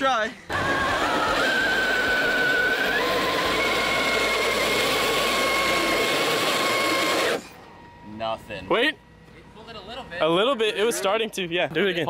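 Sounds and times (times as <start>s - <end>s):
tyres spinning on concrete: 0.5s - 7.4s
electric motor whining: 0.5s - 7.6s.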